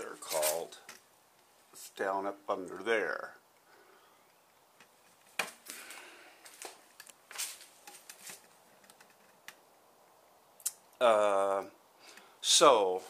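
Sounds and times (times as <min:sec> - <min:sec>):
short scuffing sounds: 0:06.4 - 0:08.4.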